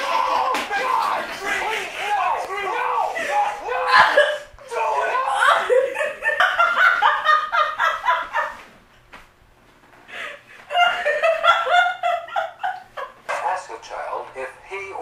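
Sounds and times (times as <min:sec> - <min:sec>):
young woman laughing: 0:03.2 - 0:08.6, 0:10.2 - 0:13.2.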